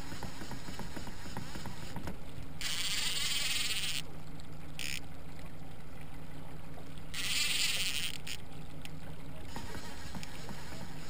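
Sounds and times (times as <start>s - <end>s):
steady low hum: 0.0s - 11.0s
fishing reel drag buzzing: 2.6s - 4.1s, 4.8s - 5.0s, 7.1s - 8.4s.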